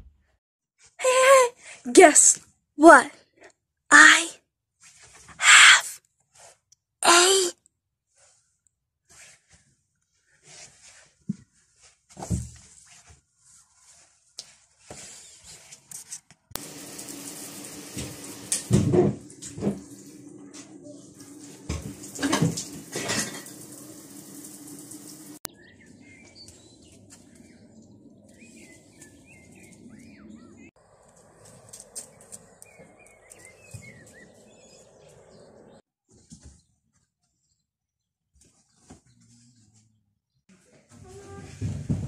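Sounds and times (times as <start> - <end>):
outdoor background noise: 0.0 - 37.6
water running: 16.6 - 25.5
birds chirping: 19.6 - 36.3.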